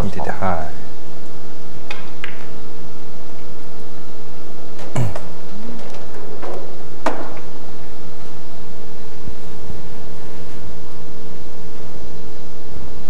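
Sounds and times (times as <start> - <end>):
faint steady hum: 0.0 - 13.0
billiard balls knocking: 1.9 - 2.6, 4.8 - 7.7
cue striking ball: 6.3 - 7.6.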